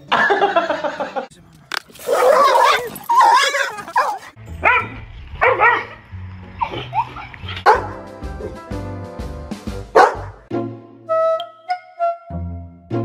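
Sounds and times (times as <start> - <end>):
music with steady bass line: 7.6 - 10.5.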